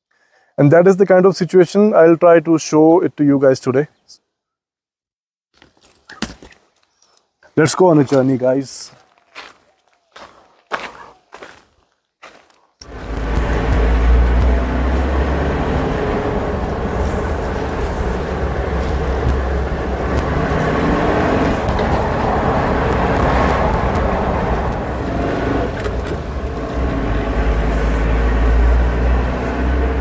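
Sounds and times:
car engine running: 12.8s - 30.0s
road rumble: 12.8s - 30.0s.

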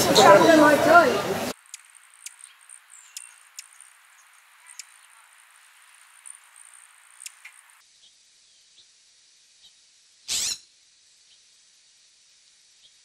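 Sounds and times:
hummingbird chip notes: 1.6s - 7.8s.

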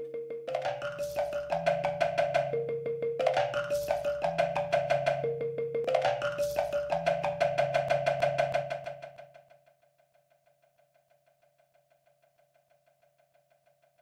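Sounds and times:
faint ticking pulse: 0.0s - 9.2s.

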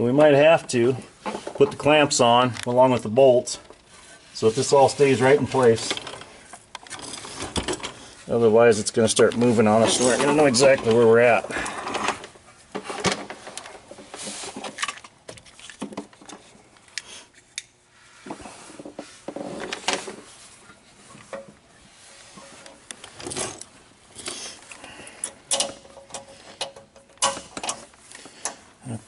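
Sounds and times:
hose and clamp clicking and rubbing: 22.6s - 28.6s.

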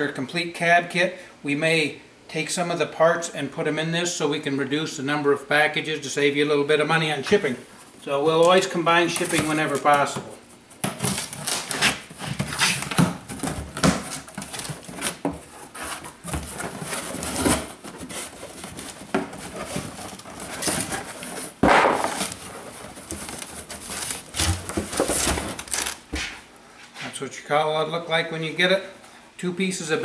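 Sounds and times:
cardboard rustling and scraping: 8.9s - 27.2s
blade slitting packing tape: 10.9s - 12.0s.

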